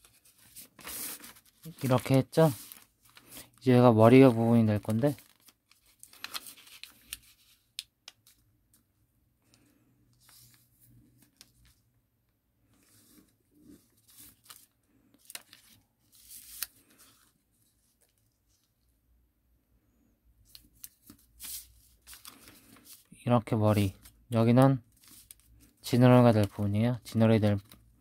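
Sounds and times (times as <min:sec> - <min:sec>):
paper rustling and crackling: 0:00.0 - 0:08.9, 0:12.6 - 0:18.8, 0:20.5 - 0:23.2, 0:23.8 - 0:27.9.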